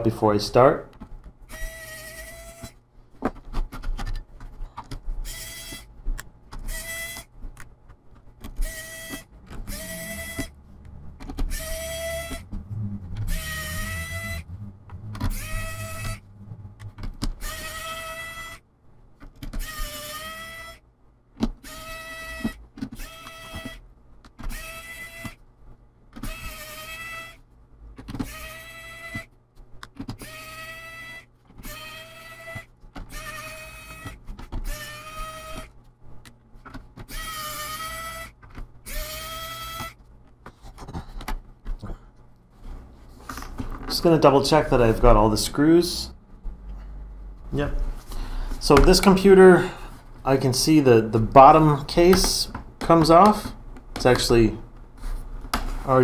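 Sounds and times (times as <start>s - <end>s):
electric screwdriver whirring: 1.5s - 2.8s, 8.6s - 10.5s, 11.2s - 12.4s, 13.2s - 14.4s, 15.2s - 16.2s, 17.3s - 18.6s, 19.5s - 20.8s, 21.6s - 23.8s, 24.5s - 25.4s, 30.2s - 35.7s.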